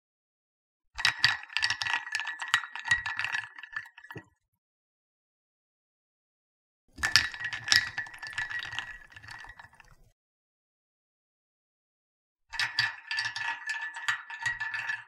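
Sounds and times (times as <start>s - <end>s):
ice cubes clinking in cup: 7.0s - 10.1s.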